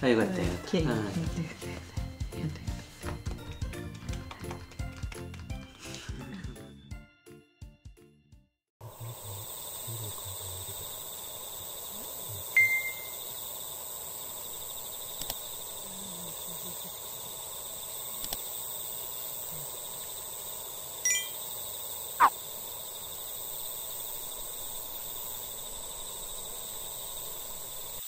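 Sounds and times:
crickets trilling: 8.8 - 28.0.

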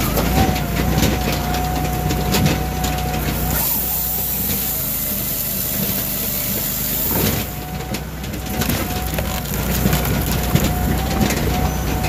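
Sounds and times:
engine whining under load: 0.0 - 12.0
saw cutting through log: 0.0 - 12.0.

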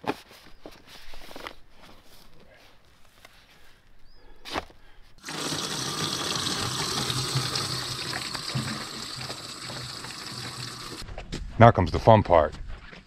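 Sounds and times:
water gushing into plastic container: 5.2 - 11.0.

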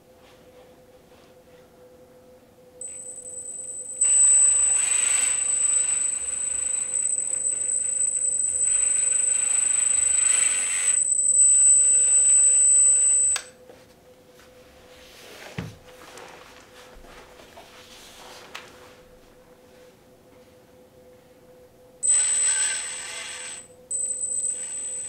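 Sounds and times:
toy excavator motor whining: 4.0 - 13.4, 22.0 - 25.0.

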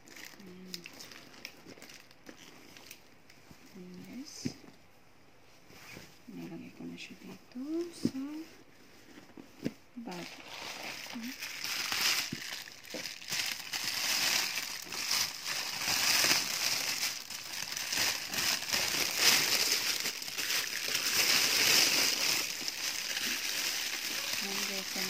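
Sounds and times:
plastic wrapping crinkling: 0.0 - 4.3, 10.0 - 25.0.

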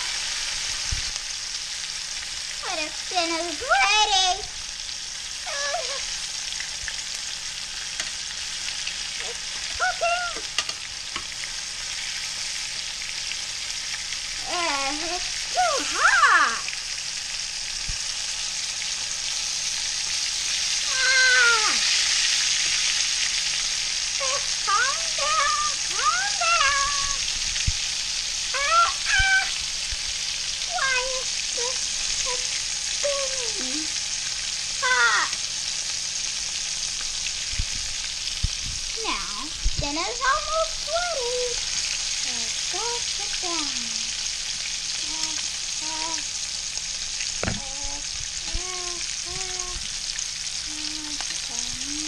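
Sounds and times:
fish sizzling in hot oil: 0.0 - 52.0
tongs knocking: 10.3 - 11.3.

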